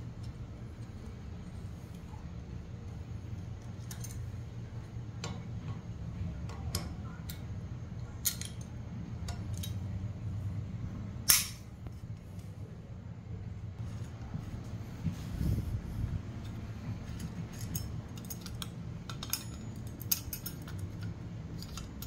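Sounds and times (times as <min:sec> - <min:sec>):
low hum: 0:00.0 - 0:22.0
hex key metallic clicks: 0:06.4 - 0:09.8, 0:16.4 - 0:22.0
sharp metallic clack: 0:11.3 - 0:11.7.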